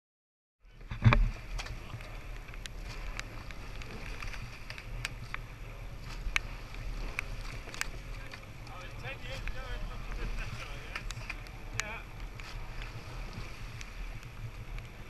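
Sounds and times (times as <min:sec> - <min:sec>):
wind buffeting microphone: 0:00.8 - 0:15.0.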